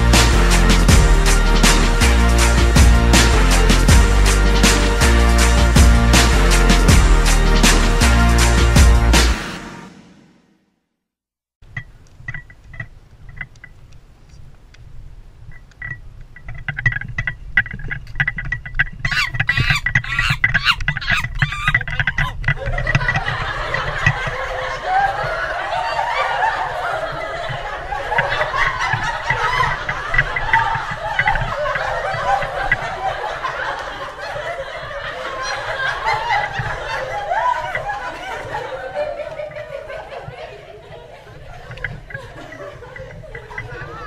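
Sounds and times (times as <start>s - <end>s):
wind on microphone: 12.1s - 44.0s
people laughing: 21.1s - 44.0s
young people giggling: 21.1s - 44.0s
people chattering: 23.5s - 44.0s.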